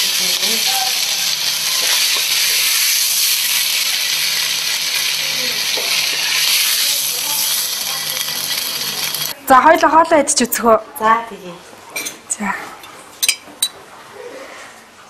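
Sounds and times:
food sizzling in wok: 0.0s - 9.4s.

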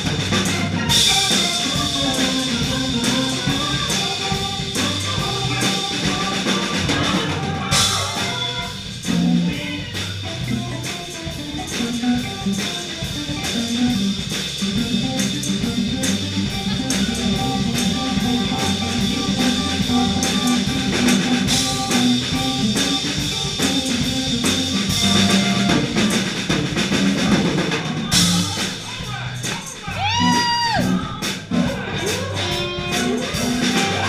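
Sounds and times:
electric guitar: 0.0s - 28.8s, 29.4s - 34.0s
drum kit with cymbals: 0.0s - 34.0s.

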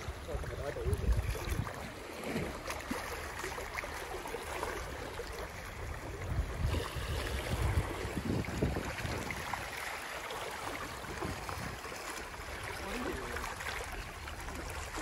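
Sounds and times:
water lapping over rocks: 0.0s - 15.0s
wind gusting on microphone: 0.7s - 2.0s, 6.0s - 9.8s.

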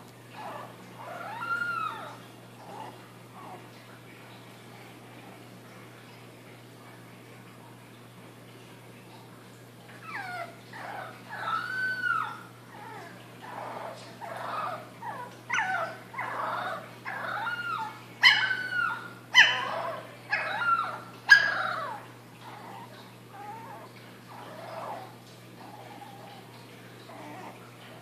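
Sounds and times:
puppy howling and whining: 0.3s - 3.7s, 10.0s - 26.4s, 27.1s - 27.6s
puppy yelps: 0.4s - 3.6s, 10.0s - 26.4s.

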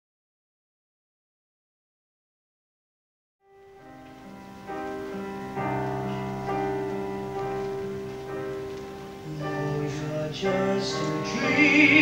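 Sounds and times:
soft held instrumental chords: 3.6s - 12.0s.

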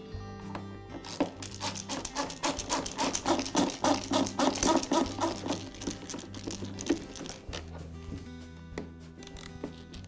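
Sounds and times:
screwdriver creaking screw out: 1.0s - 7.8s, 9.2s - 10.0s.

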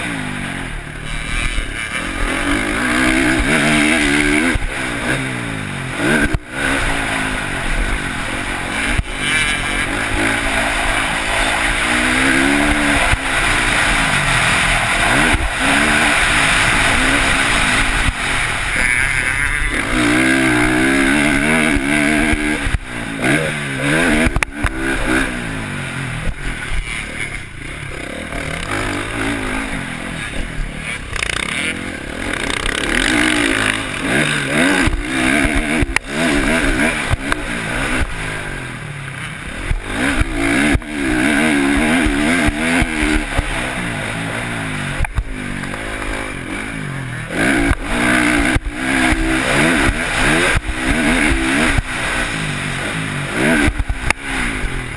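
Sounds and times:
dirt bike engine revving: 0.0s - 54.9s
wind noise: 0.9s - 27.7s.

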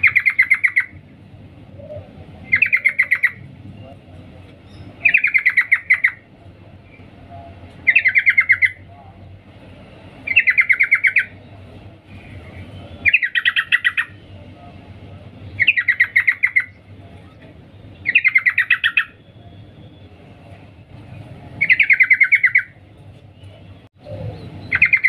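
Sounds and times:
bird chattering call: 0.0s - 1.0s, 1.8s - 3.4s, 4.7s - 6.2s, 7.8s - 8.8s, 10.3s - 11.4s, 13.0s - 14.2s, 15.6s - 16.8s, 18.0s - 19.3s, 21.6s - 22.7s, 24.1s - 25.0s.

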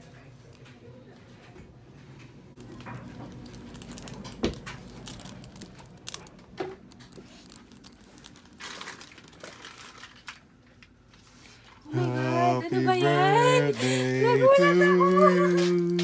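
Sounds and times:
people moving about: 11.1s - 16.0s.

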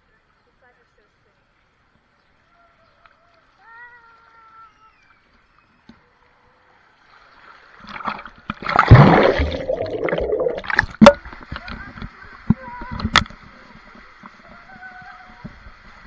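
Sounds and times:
water rushing down waterslide: 6.9s - 16.0s
churning water underwater: 7.2s - 14.6s
loud splash into pool: 7.9s - 11.2s.

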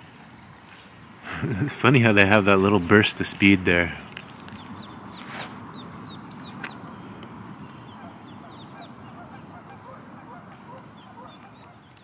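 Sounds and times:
low steady hiss: 0.0s - 9.8s
ducklings peeping: 2.6s - 12.0s.

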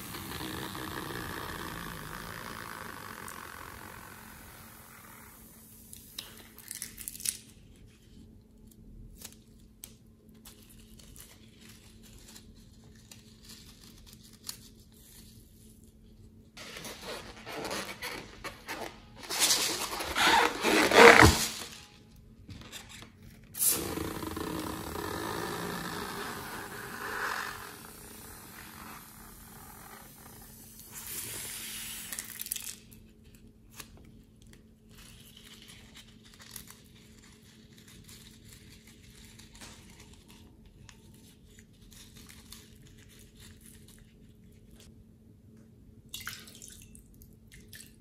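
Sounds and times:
squelching slime balloons: 0.0s - 6.6s, 16.6s - 22.0s, 23.6s - 31.6s.

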